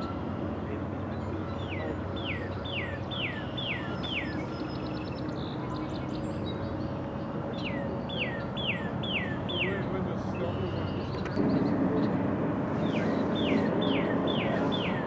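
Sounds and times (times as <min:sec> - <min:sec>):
low background rumble: 0:00.0 - 0:15.0
songbird whistling: 0:01.6 - 0:05.6, 0:07.6 - 0:09.8, 0:12.9 - 0:15.0.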